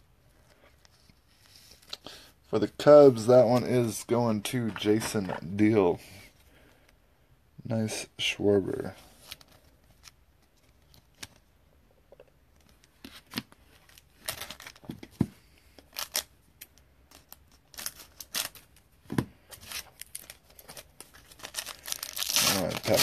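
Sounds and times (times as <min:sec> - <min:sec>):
card pack crinkling and clicking: 0:19.5 - 0:23.0.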